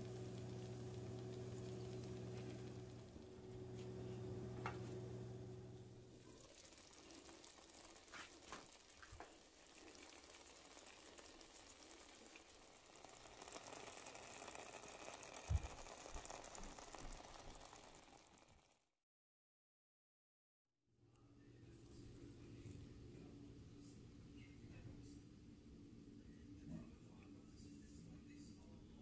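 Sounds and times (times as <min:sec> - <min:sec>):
food sizzling in oil: 0:00.0 - 0:03.8, 0:06.0 - 0:18.5.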